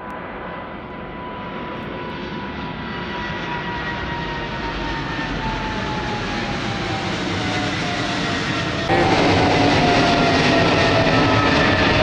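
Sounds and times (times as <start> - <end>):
jet engine roar: 0.0 - 12.0
high jet whine falling in pitch: 5.7 - 12.0.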